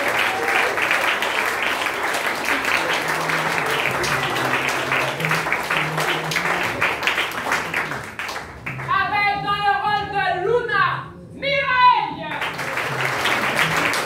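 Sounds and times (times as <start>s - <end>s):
audience applauding: 0.0s - 8.9s, 12.3s - 14.0s.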